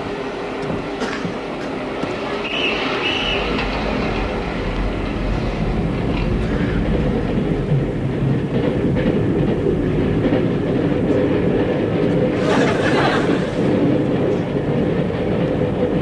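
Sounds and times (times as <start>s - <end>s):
train rumbling and rattling: 0.0s - 16.0s.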